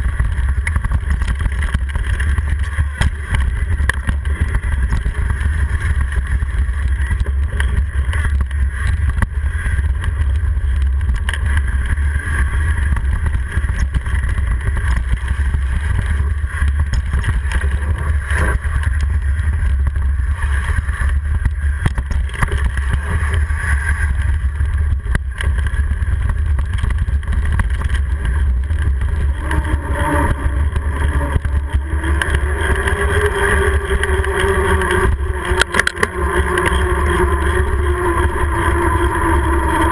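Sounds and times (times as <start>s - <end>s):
humming tone: 0.0s - 39.9s
tyre and trail noise: 0.0s - 39.9s
wind buffeting microphone: 0.0s - 39.9s.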